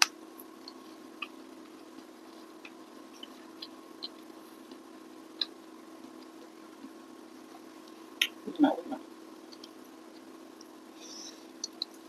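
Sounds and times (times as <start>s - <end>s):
soft eating clicks: 0.0s - 7.0s, 9.4s - 10.8s, 11.5s - 12.0s
steady low hum: 0.0s - 12.0s.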